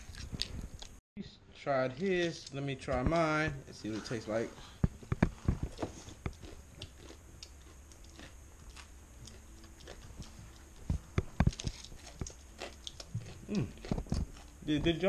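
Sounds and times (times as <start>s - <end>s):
person chewing fried food: 4.9s - 14.6s
sharp clicks and crunches: 4.9s - 15.0s.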